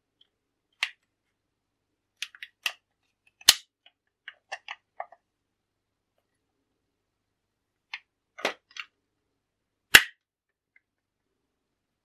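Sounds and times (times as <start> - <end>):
plastic clicking: 2.2 - 5.2
plastic clip snapping: 3.4 - 3.7.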